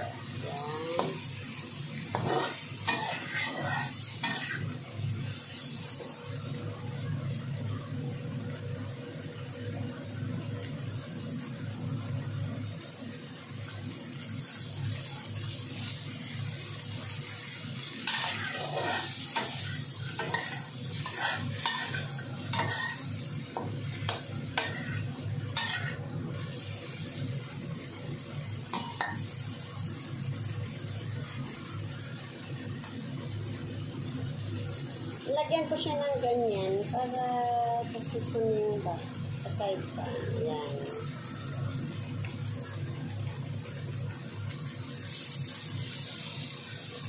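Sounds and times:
shrimp sizzling in a pan: 0.0 - 47.0
metal spatula scraping a pan: 2.1 - 4.7, 18.0 - 26.0.

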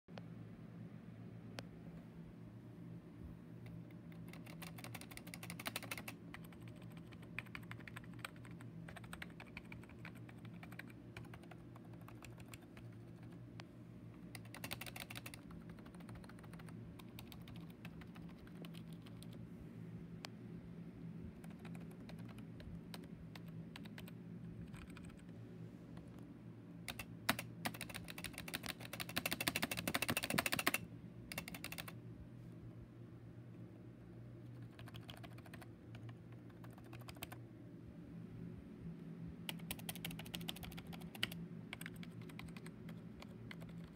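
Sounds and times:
keyboard keys clacking: 14.3 - 19.3, 26.9 - 31.9.

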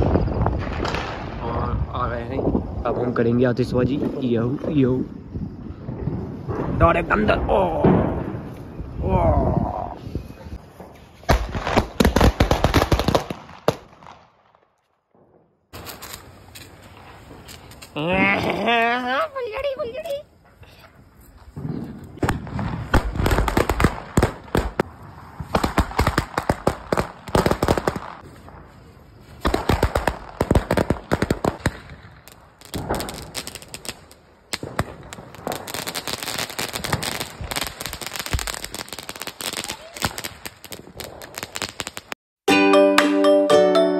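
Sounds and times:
firecrackers banging: 0.0 - 1.8, 5.7 - 9.0, 21.5 - 42.2.

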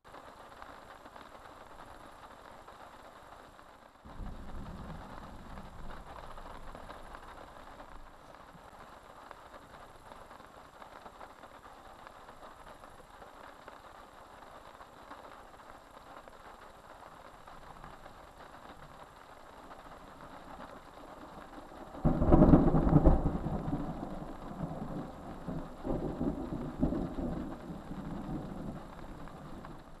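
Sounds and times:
faint steady hiss: 0.0 - 30.0
thunder rumbling: 4.1 - 8.8, 19.7 - 30.0.

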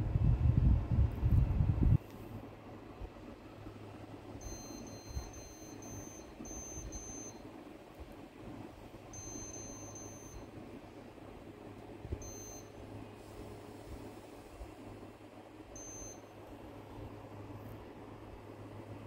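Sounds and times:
low hum and air noise: 0.0 - 19.0
air conditioner beeps: 3.6 - 17.6.

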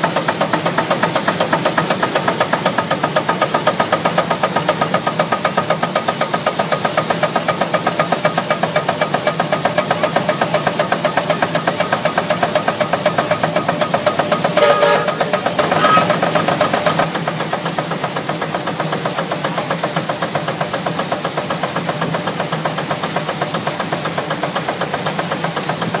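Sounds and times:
steam engine running: 0.0 - 26.0
threshing machine hum: 10.1 - 17.2.

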